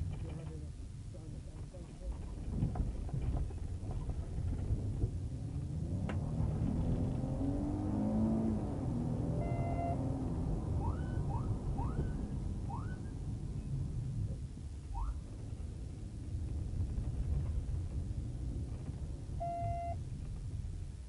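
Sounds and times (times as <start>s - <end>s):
car road and engine rumble: 0.0s - 21.0s
short rising siren chirps: 9.2s - 13.1s, 14.9s - 15.2s.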